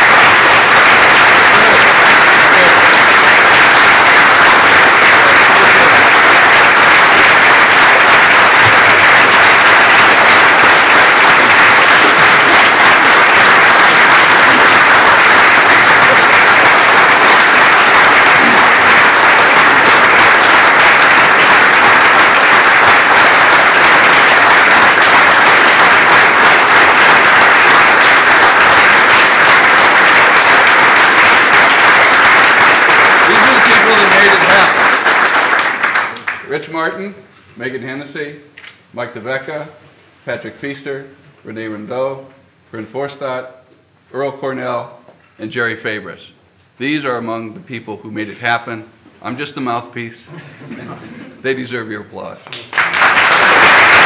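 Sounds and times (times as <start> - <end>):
audience applauding: 0.0 - 36.6, 52.5 - 54.0.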